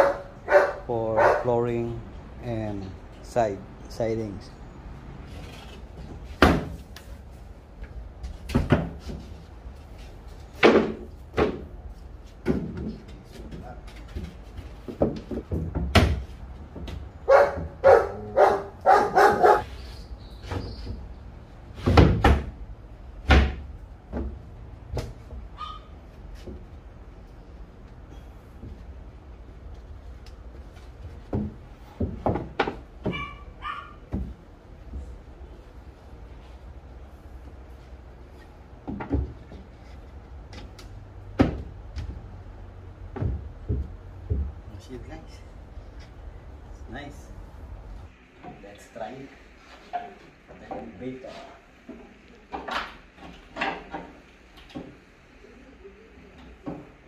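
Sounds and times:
plywood knocking on wood: 0:43.1 - 0:44.6.

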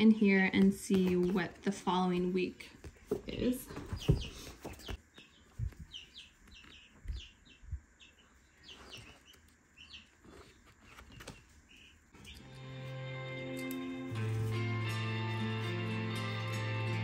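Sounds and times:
baby chicks cheeping: 0:03.7 - 0:13.8
background music: 0:12.2 - 0:17.0.

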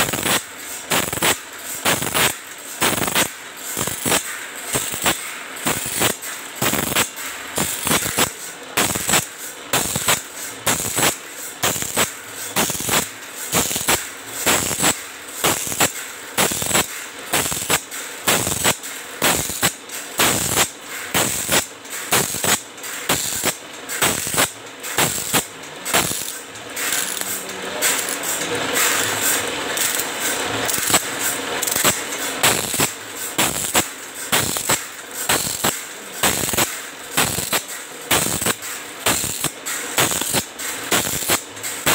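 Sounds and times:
grinding wheel hiss: 0:00.0 - 0:41.9
feed mechanism clacking: 0:19.7 - 0:41.9.

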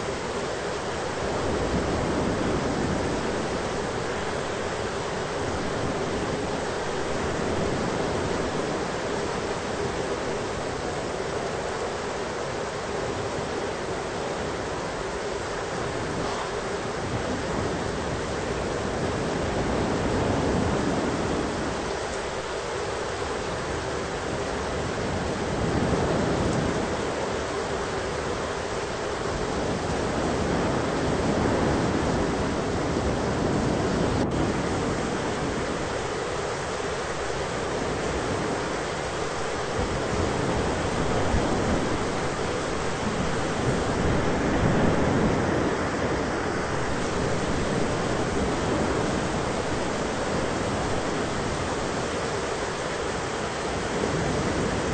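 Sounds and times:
thunderstorm rushing and rumble: 0:00.0 - 0:54.9.

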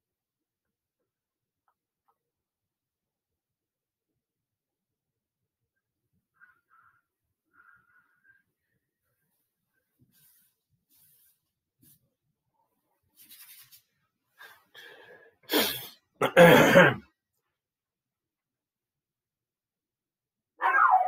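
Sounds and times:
catching breaths: 0:14.3 - 0:16.1
man sneezing: 0:15.5 - 0:17.0.

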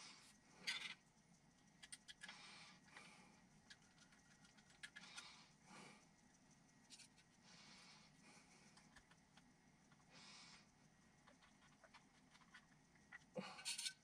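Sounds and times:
small metal clicks: 0:11.2 - 0:14.0.

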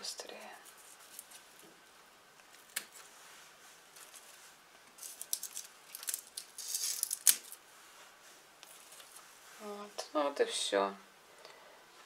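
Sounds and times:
plastic bag and net rustling: 0:02.9 - 0:09.8.

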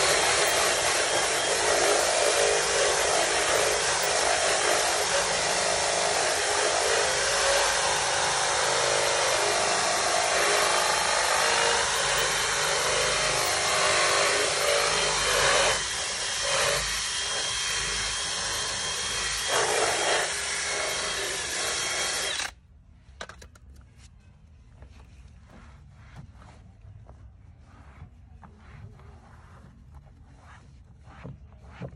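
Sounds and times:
cordless drill scrubbing door panel: 0:00.0 - 0:22.5.

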